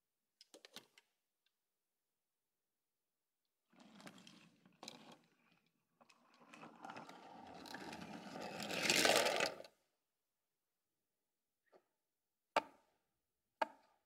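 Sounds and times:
toy train rolling on wooden track: 3.8 - 9.7.

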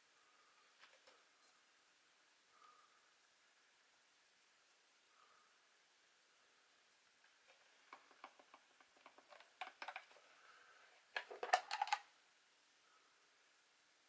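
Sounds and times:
plastic clicks and taps: 7.9 - 10.2, 11.2 - 12.0.

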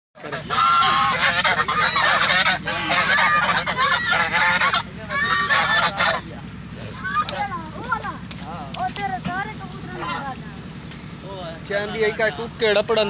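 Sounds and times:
geese honking: 0.2 - 8.0, 9.8 - 10.6.

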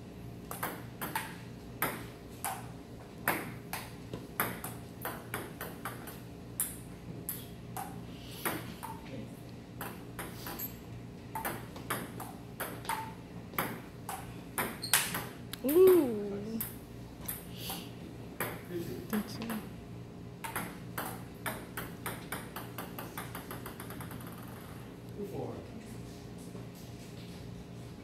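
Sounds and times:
ping pong ball clicking: 0.5 - 2.6, 20.4 - 24.7.

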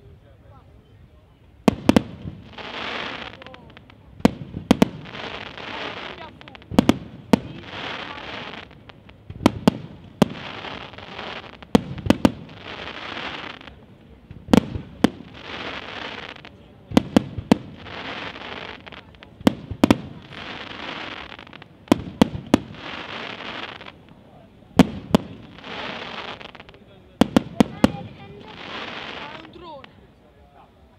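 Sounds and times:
firework crackling hiss: 1.7 - 30.1.

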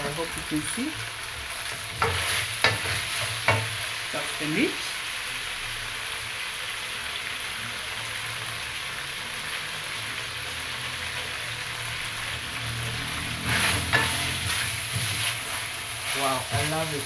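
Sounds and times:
meat and onions sizzling in a wok: 0.0 - 17.0
wooden spoon scraping a pan: 1.6 - 3.8, 13.4 - 17.0.

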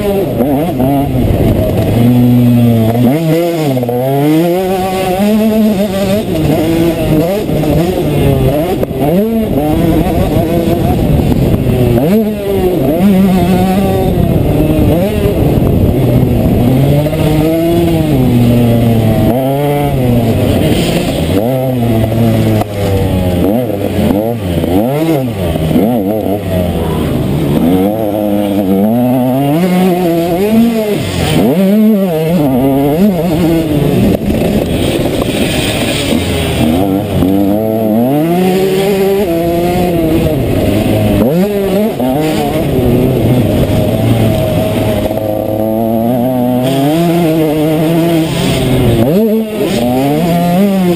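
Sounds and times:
motocross engine revving: 0.0 - 50.9.

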